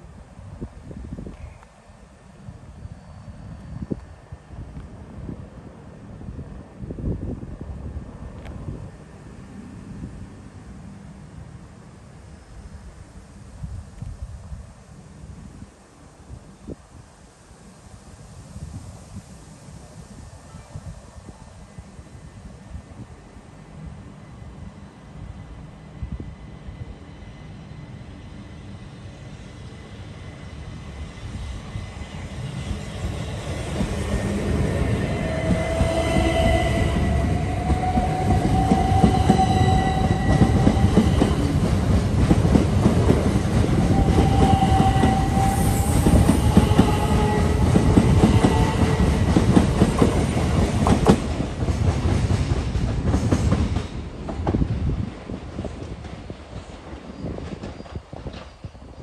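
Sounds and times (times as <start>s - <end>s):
train wheels clattering on rails: 32.7s - 59.0s.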